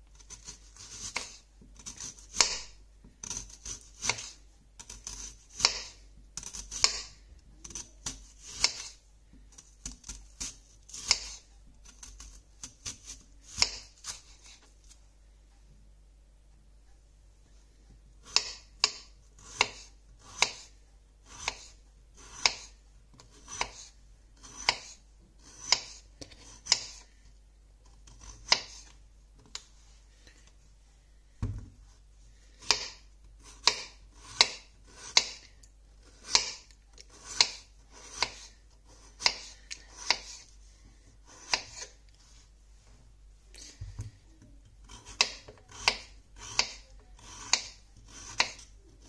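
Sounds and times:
knife slicing potatoes on board: 0.2s - 9.0s, 9.6s - 14.7s, 18.2s - 27.1s, 27.9s - 29.6s, 32.5s - 40.5s, 41.2s - 42.0s, 44.7s - 49.0s.

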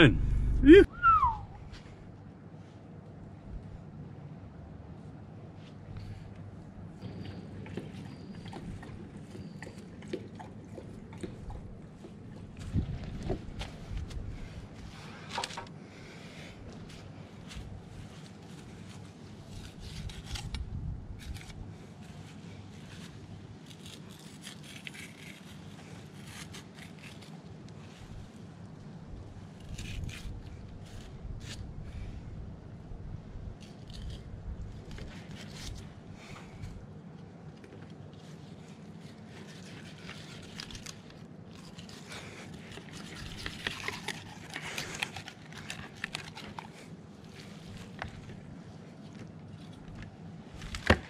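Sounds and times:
knife scraping through fish skin: 22.8s - 27.6s, 38.3s - 46.7s.

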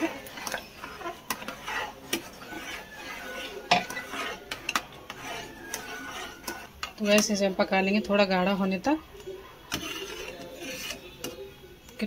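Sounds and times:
spoon clinking against pot: 0.0s - 7.4s
metal spoon stirring in saucepan: 0.0s - 12.0s.

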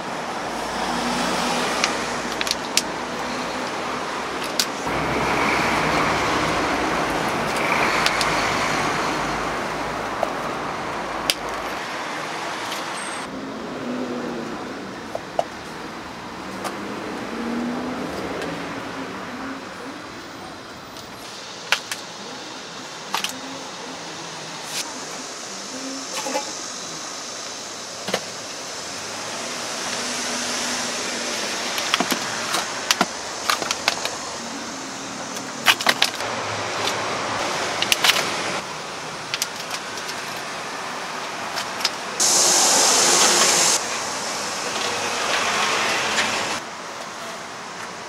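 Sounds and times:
market background noise: 0.0s - 48.0s
loud hiss: 20.9s - 47.7s.

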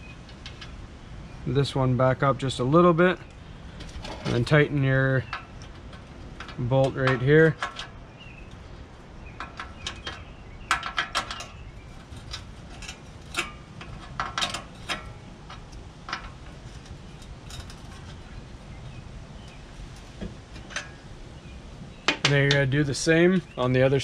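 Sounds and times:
wrench on metal bolt: 5.2s - 8.0s, 9.4s - 18.2s.

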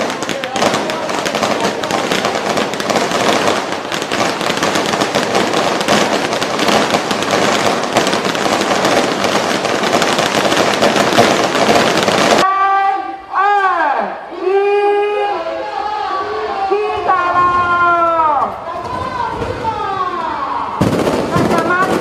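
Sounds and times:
firecrackers crackling: 0.0s - 12.5s, 17.0s - 22.0s.

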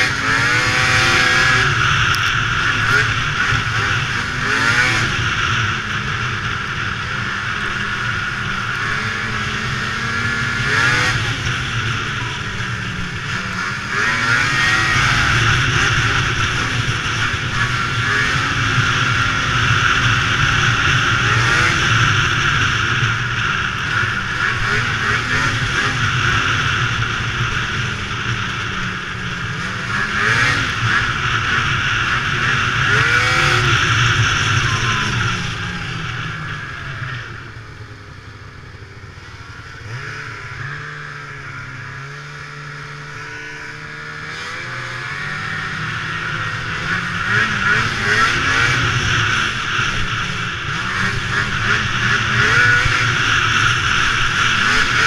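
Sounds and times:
snowmobile engine running: 0.0s - 55.0s.

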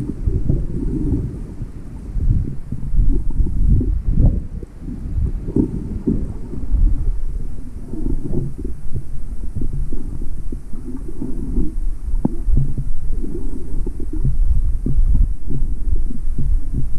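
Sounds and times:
muffled underwater rumble: 0.0s - 16.9s
water thumping against camera: 7.8s - 16.9s.

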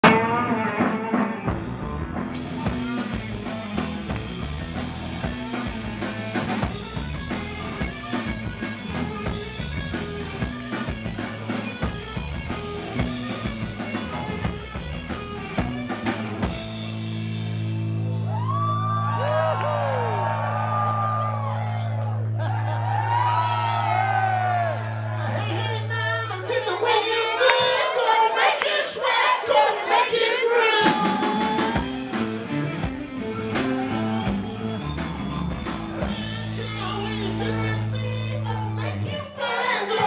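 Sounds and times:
sliding high guitar notes: 0.0s - 18.2s, 31.0s - 38.1s
electric guitar: 0.0s - 26.4s, 30.8s - 39.1s
rock band playing: 0.0s - 40.0s
pounding drum kit: 0.8s - 19.4s, 30.6s - 38.3s.

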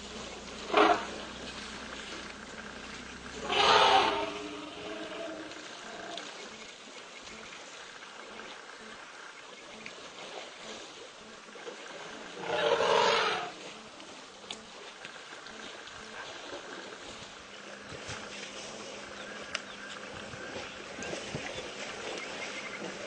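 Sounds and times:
elephants calling: 0.1s - 6.7s, 12.0s - 17.9s.

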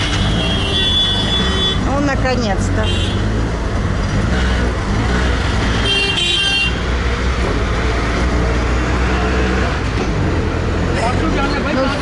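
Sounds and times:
auto-rickshaw engine running: 0.0s - 12.0s
road traffic: 0.0s - 12.0s
vehicle horn honking: 0.1s - 1.9s, 5.8s - 6.8s.

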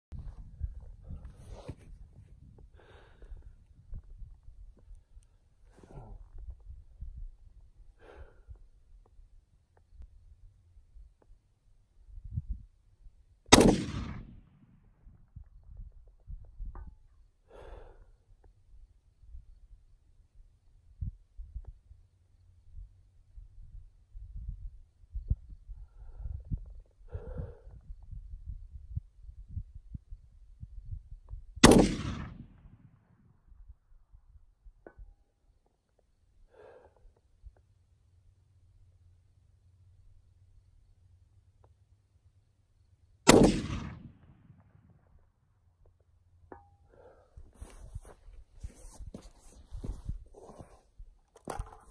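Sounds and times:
rifle shot: 13.5s - 14.8s, 31.6s - 33.0s, 43.3s - 44.9s.

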